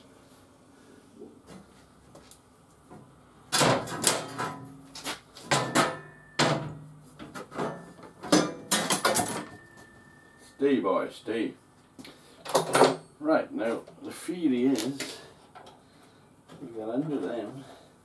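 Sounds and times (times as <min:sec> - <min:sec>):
metal tools clanking: 0:05.5 - 0:06.8, 0:07.4 - 0:10.3.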